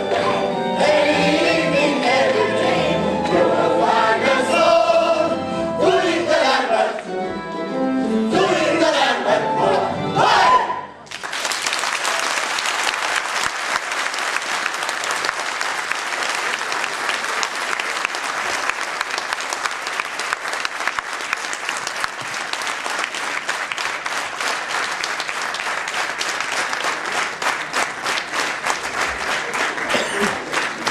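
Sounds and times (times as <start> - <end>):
audience applauding: 11.0 - 30.9.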